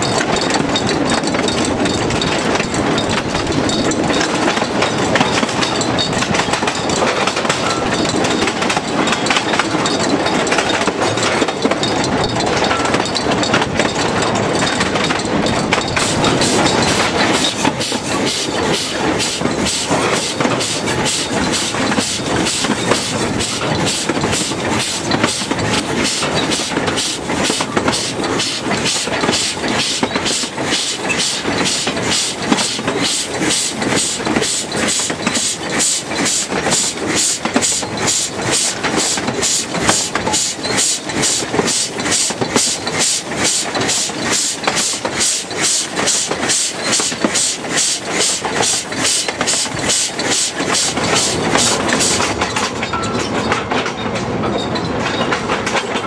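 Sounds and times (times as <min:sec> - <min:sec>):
diesel train running: 0:00.0 - 0:56.0
wheels clattering over rails: 0:00.0 - 0:56.0.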